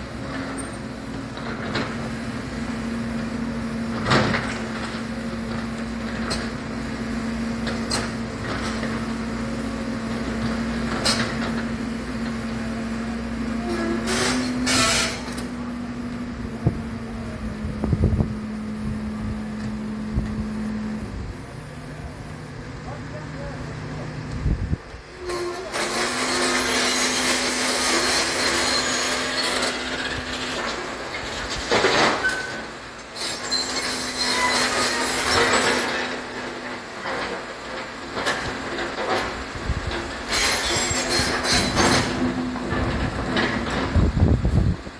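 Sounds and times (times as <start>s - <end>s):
excavator diesel engine hum: 0.0s - 44.9s
metallic squealing and scraping: 13.5s - 15.5s, 25.2s - 30.6s, 32.2s - 36.2s, 40.3s - 42.4s.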